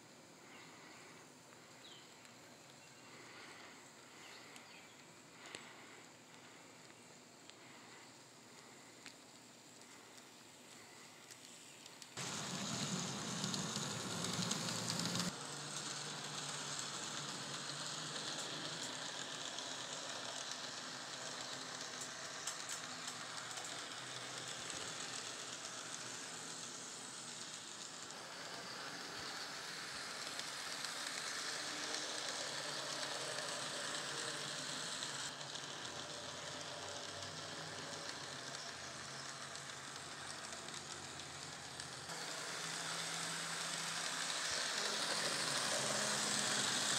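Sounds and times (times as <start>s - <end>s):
model train motors whirring: 0.0s - 46.9s
wheels running on track: 10.9s - 46.9s.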